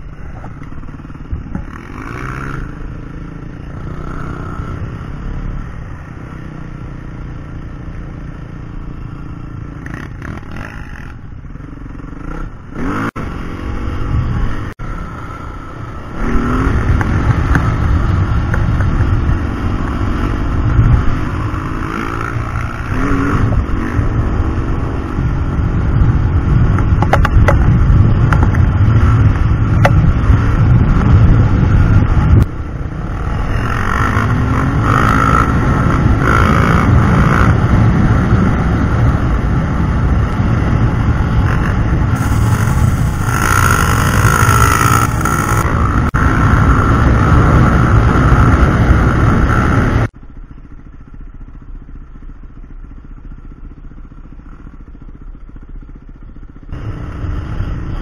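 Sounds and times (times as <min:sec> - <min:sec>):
dirt bike engine revving: 0:01.0 - 0:05.3, 0:09.1 - 0:18.5, 0:19.1 - 0:25.6, 0:32.9 - 0:50.1
wind noise on camera: 0:16.2 - 0:50.1.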